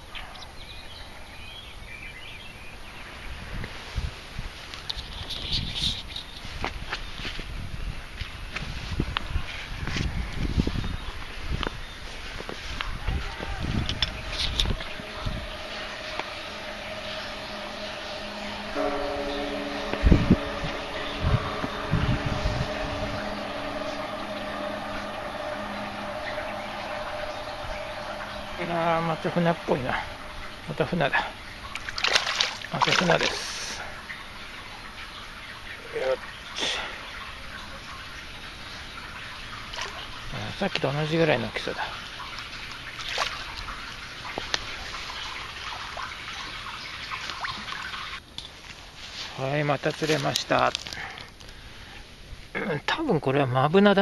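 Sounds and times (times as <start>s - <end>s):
even hiss: 12.1s - 35.2s
low thumps: 12.8s - 33.2s
fish splashing in water: 31.3s - 35.5s, 42.0s - 48.3s.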